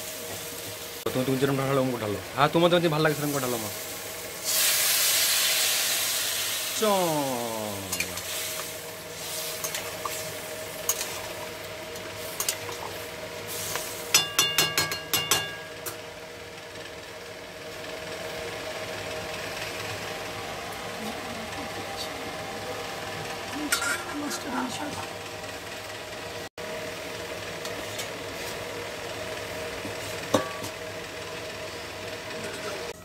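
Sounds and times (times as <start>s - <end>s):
curry simmering and sizzling: 0.0s - 33.0s
spatula tapping metal pan: 14.1s - 15.8s.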